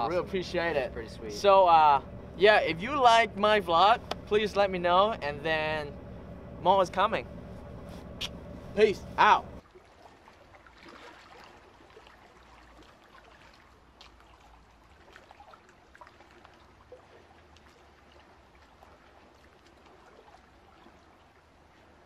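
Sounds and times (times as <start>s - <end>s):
low steady hum: 0.0s - 9.7s
water trickling and lapping: 0.0s - 22.0s.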